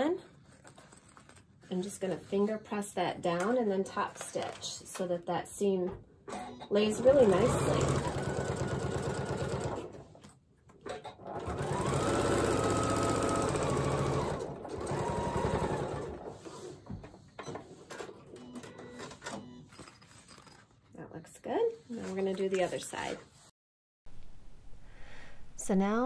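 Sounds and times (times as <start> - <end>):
sewing machine stitching: 6.3 - 10.2, 10.9 - 16.8.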